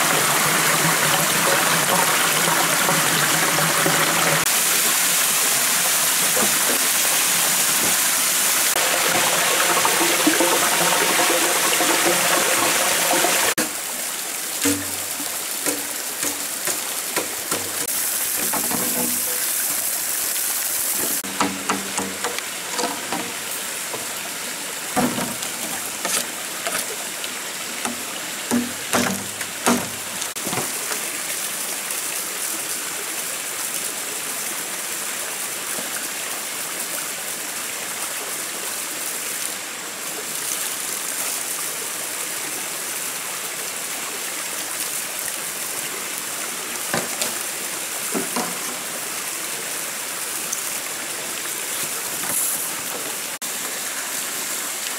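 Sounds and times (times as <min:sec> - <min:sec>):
forest stream rushing: 0:00.0 - 0:54.9
sharp knocks and clatters: 0:14.6 - 0:19.6, 0:21.0 - 0:24.1, 0:25.0 - 0:26.8, 0:27.8 - 0:30.7.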